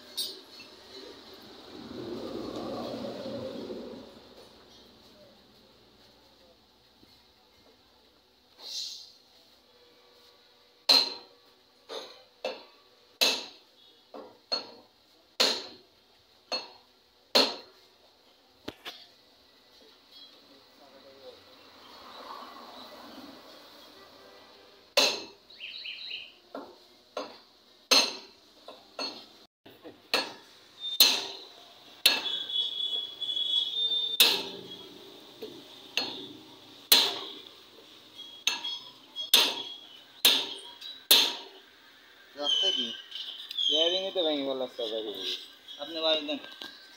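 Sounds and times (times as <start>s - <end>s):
hammer striking metal: 10.9s - 11.3s, 11.9s - 13.6s, 15.4s - 15.8s, 16.5s - 17.7s, 25.0s - 25.4s, 27.2s - 28.4s, 30.1s - 32.4s, 34.2s - 34.8s, 36.0s - 37.4s, 38.4s - 41.6s.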